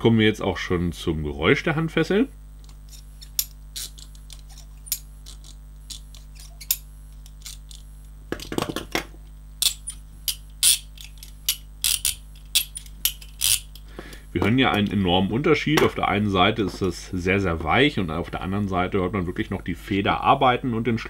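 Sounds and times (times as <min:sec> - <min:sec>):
handcuffs ratcheting clicks: 0:09.6 - 0:13.9.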